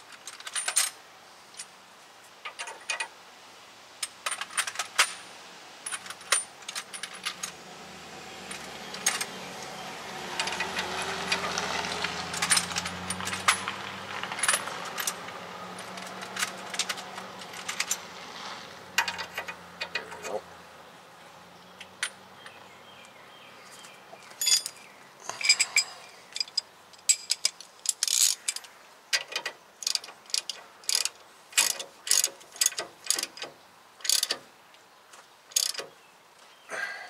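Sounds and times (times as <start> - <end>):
metal tools clinking: 0.0 - 1.0, 5.8 - 7.6, 8.4 - 9.7, 10.3 - 18.1, 19.0 - 20.4, 24.2 - 34.4
vehicle passing: 7.0 - 24.2.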